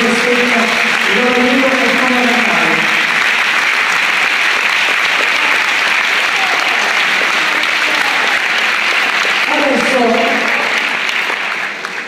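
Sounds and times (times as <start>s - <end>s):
person speaking: 0.0s - 3.0s, 9.5s - 10.8s
audience applauding: 0.0s - 12.0s.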